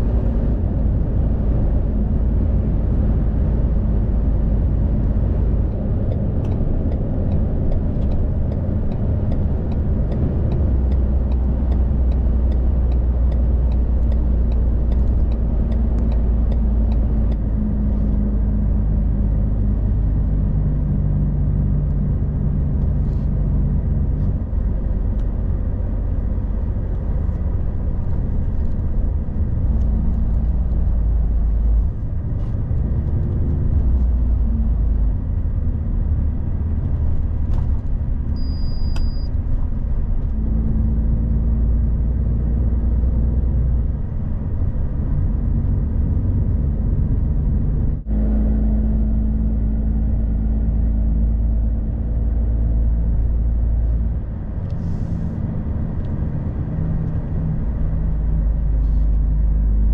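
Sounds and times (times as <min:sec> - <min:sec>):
truck engine and road rumble: 0:00.0 - 0:59.9
high beep: 0:38.4 - 0:39.3.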